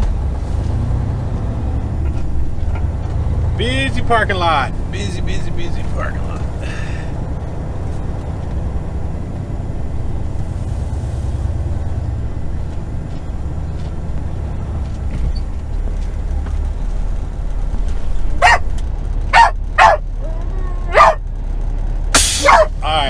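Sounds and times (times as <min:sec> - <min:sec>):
diesel truck engine rumble: 0:00.0 - 0:23.0
dog barking: 0:18.4 - 0:18.7, 0:19.3 - 0:20.0, 0:20.9 - 0:21.2, 0:22.4 - 0:22.8.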